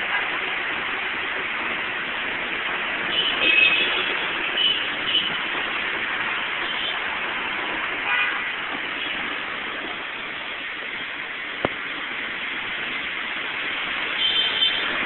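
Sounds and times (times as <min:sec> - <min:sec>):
heavy rain pouring: 0:00.0 - 0:15.0
traffic on wet road: 0:00.0 - 0:15.0
vehicle horn toot: 0:03.1 - 0:05.4.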